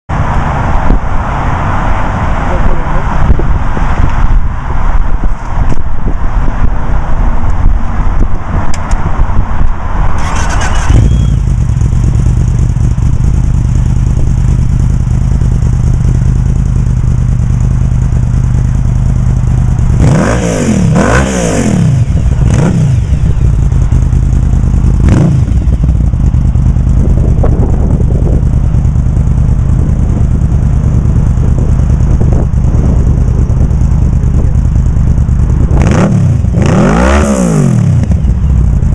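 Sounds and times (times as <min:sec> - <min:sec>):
engine revving: 0:10.2 - 0:12.0, 0:19.8 - 0:26.1, 0:35.6 - 0:38.4
motorcycle engine idling: 0:10.6 - 0:20.0, 0:21.9 - 0:36.6, 0:38.0 - 0:38.9.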